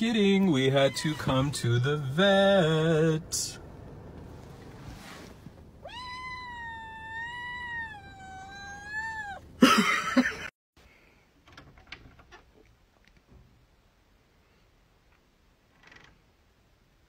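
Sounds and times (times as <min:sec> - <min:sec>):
cat yowling: 0:00.6 - 0:01.7, 0:05.8 - 0:09.6.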